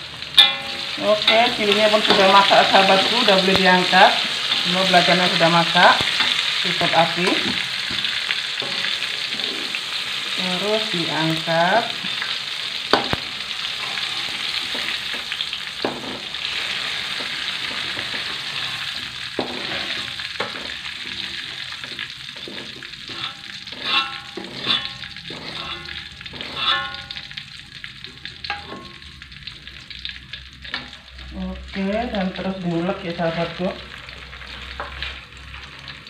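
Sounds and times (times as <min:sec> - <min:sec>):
hot oil sizzling in wok: 0:00.0 - 0:36.0
metal ladle scraping wok: 0:00.1 - 0:29.8.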